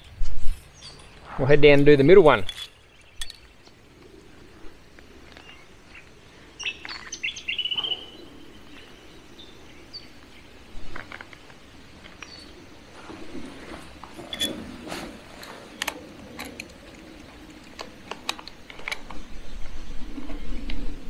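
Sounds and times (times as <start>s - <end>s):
birds chirping: 0.0s - 21.0s
faint outdoor ambience: 0.0s - 21.0s.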